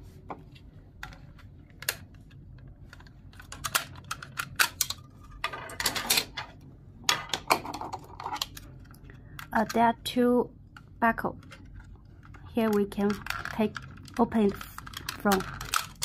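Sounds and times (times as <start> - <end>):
plastic clicks and rattles: 1.0 - 6.5, 11.4 - 16.0.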